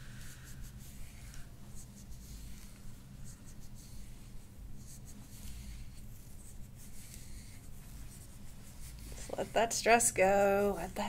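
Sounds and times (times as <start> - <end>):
faint low hum: 0.0 - 11.0.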